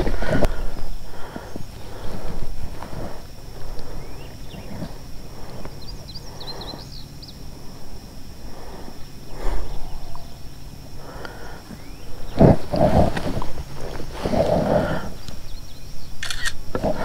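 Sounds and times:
soft rustles: 0:00.0 - 0:05.8, 0:11.6 - 0:15.5
bird chirping: 0:03.0 - 0:16.6
low rumble: 0:07.4 - 0:15.6.

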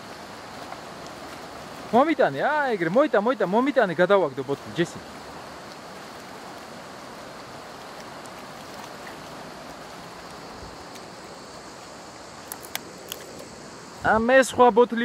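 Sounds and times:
river rushing: 0:00.0 - 0:15.0.

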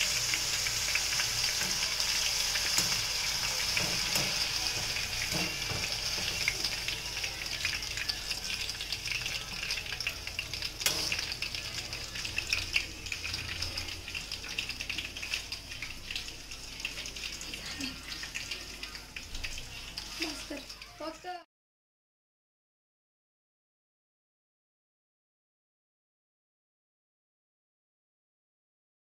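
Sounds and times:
fries sizzling in hot oil: 0:00.0 - 0:21.5.

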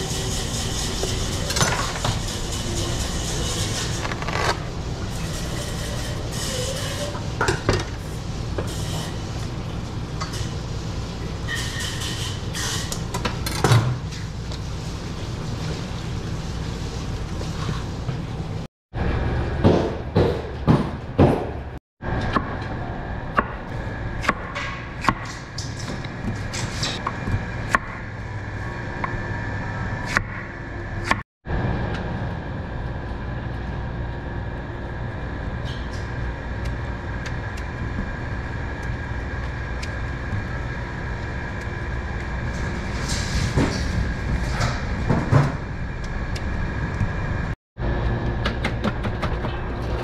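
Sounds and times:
low machinery hum: 0:00.0 - 0:50.0.

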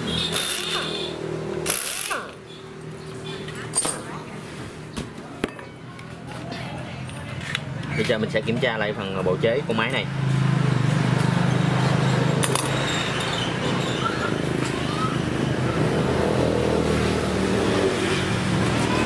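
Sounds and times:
small engine running: 0:00.1 - 0:02.4.

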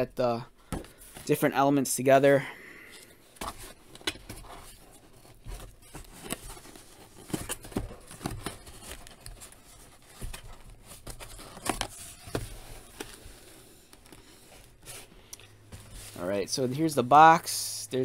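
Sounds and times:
cardboard box scraping and rustling: 0:03.4 - 0:15.1, 0:15.7 - 0:16.9.

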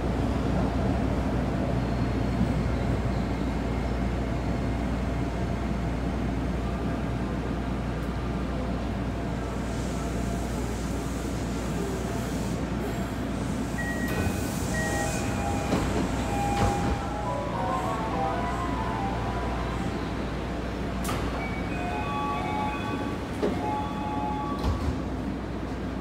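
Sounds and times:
subway train running rumble: 0:00.0 - 0:26.0
door-opening chime: 0:13.8 - 0:17.9, 0:21.1 - 0:25.0.

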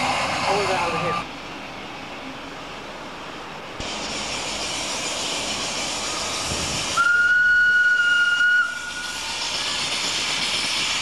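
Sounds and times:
moving train running noise: 0:00.0 - 0:11.0
locomotive whistle: 0:07.0 - 0:09.6.

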